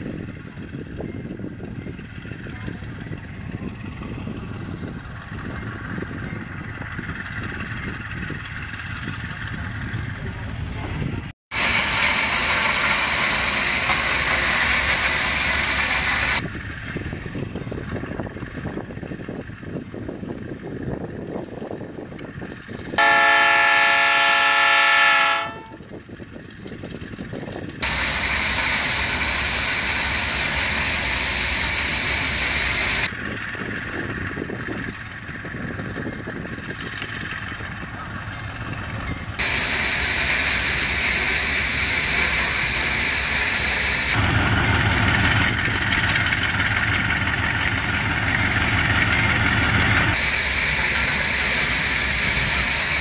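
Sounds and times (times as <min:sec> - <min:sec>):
engine and wind noise: 0:00.0 - 0:53.0
locomotive horn: 0:23.0 - 0:25.8.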